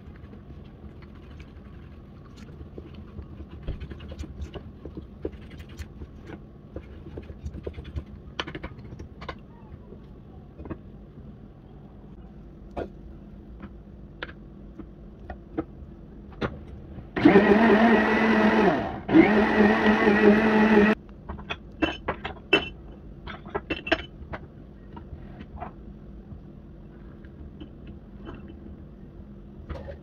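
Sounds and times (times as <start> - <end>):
blender motor running: 17.2 - 21.0.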